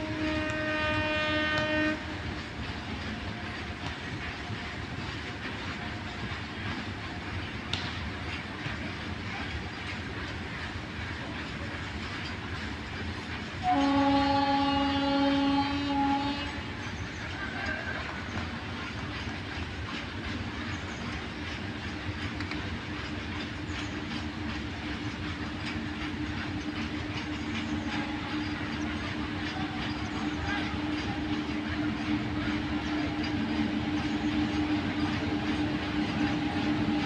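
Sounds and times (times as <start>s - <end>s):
locomotive horn blast: 0.0s - 2.3s, 13.6s - 16.7s, 27.8s - 29.6s
train running rumble: 0.0s - 37.0s.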